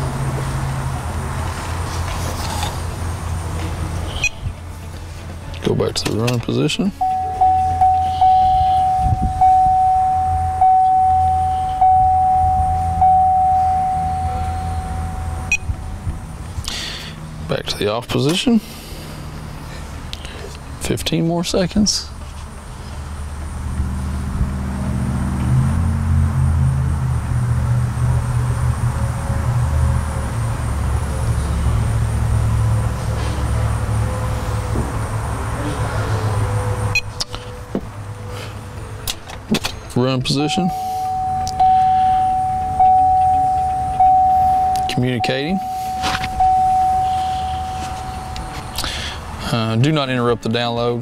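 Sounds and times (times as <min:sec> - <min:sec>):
low steady hum: 0:01.9 - 0:18.0, 0:40.0 - 0:49.7
dashboard warning chime: 0:07.0 - 0:15.9, 0:40.3 - 0:48.8.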